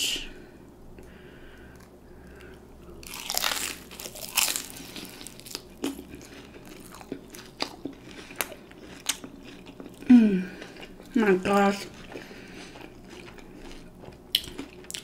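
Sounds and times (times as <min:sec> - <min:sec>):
chewing with crisp crackles: 0:01.0 - 0:15.0
crunch of biting onion ring: 0:03.0 - 0:11.0, 0:11.9 - 0:15.0.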